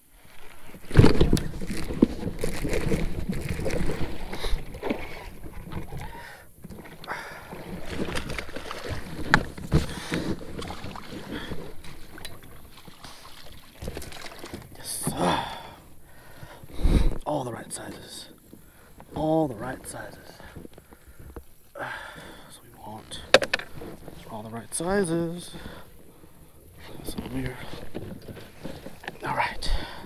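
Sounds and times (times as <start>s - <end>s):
water splashing: 0.8s - 16.6s
net scooping water: 6.8s - 15.0s.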